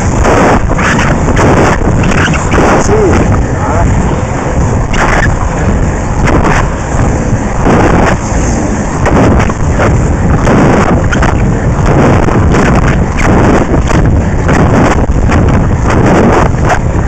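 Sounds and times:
skate wheels rolling on asphalt: 0:00.0 - 0:17.0
wind buffeting microphone: 0:00.0 - 0:17.0.

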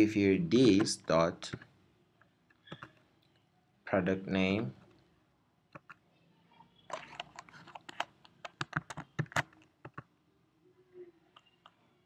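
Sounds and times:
typing on keyboard: 0:02.6 - 0:03.0, 0:05.7 - 0:06.0, 0:06.9 - 0:10.1.

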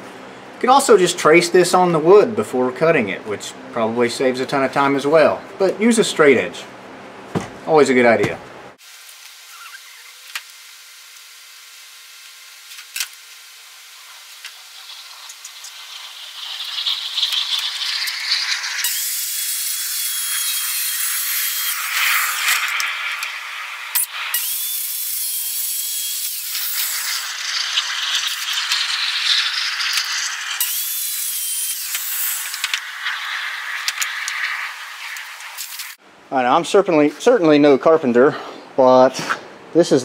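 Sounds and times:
circular saw cutting wood: 0:09.1 - 0:36.0.

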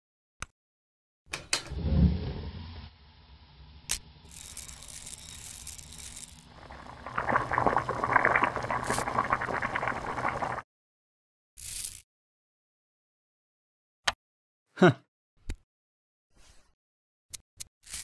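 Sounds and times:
low hum: 0:01.7 - 0:10.2
pot bubbling at a simmer: 0:01.7 - 0:10.6.

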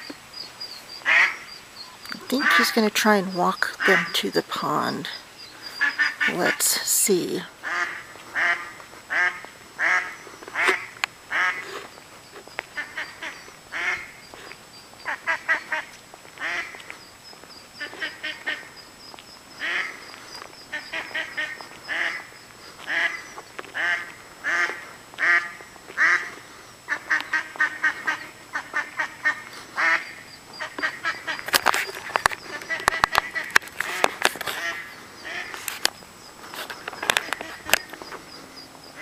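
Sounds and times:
duck quacking: 0:01.0 - 0:04.2, 0:05.7 - 0:06.8, 0:07.6 - 0:11.8, 0:12.7 - 0:14.2, 0:15.0 - 0:16.8, 0:17.8 - 0:18.7, 0:19.6 - 0:20.1, 0:20.7 - 0:31.5, 0:32.5 - 0:35.5.

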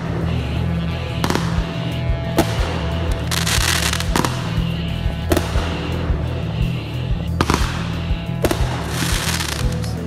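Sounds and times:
song with a steady beat: 0:00.0 - 0:10.0
firework bangs: 0:01.2 - 0:06.3, 0:07.3 - 0:09.9
firework crackling burst: 0:07.4 - 0:09.9.

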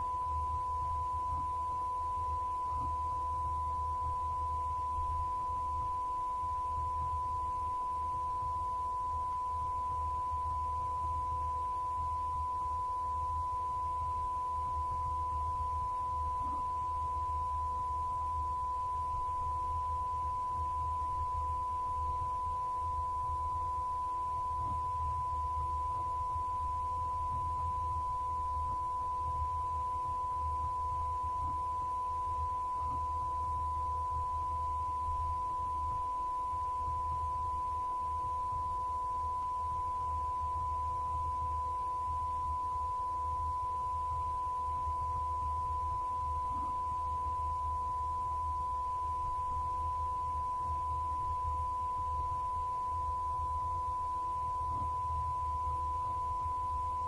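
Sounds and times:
faint low hum: 0:00.0 - 0:57.0.

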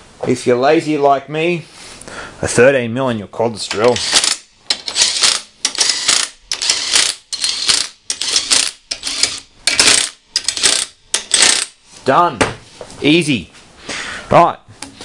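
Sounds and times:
impact driver hammering bolts: 0:03.7 - 0:11.7.

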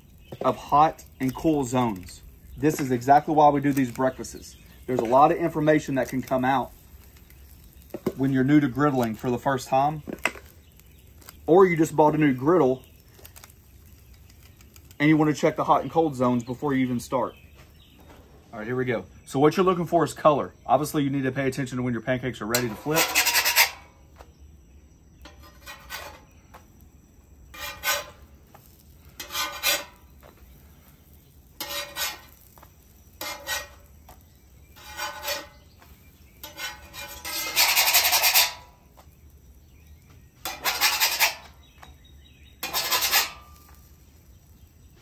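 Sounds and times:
metal spatula scraping griddle: 0:00.2 - 0:15.9, 0:22.4 - 0:24.0, 0:25.2 - 0:26.5, 0:27.5 - 0:38.9, 0:40.4 - 0:41.8, 0:42.4 - 0:44.8.

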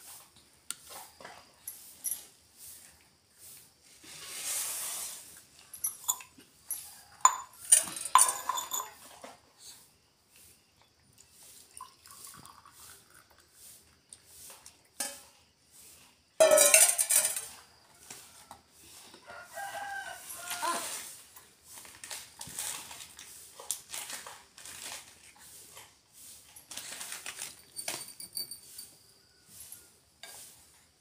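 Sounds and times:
rooster crowing: 0:19.2 - 0:21.1.

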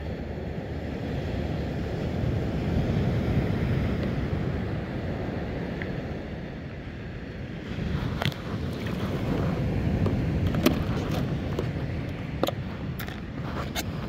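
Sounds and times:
wind rumbling on microphone: 0:00.0 - 0:14.0
clicks and knocks in cooler box: 0:10.0 - 0:14.0.

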